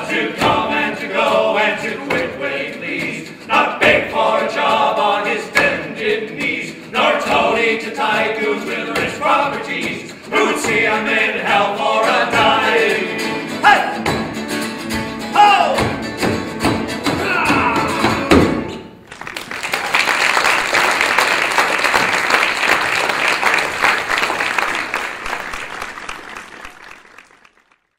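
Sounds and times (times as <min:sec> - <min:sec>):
men singing folk song: 0:00.0 - 0:14.1
mandolin: 0:00.0 - 0:19.0
acoustic guitar: 0:00.0 - 0:19.1
audience applauding: 0:19.0 - 0:27.9.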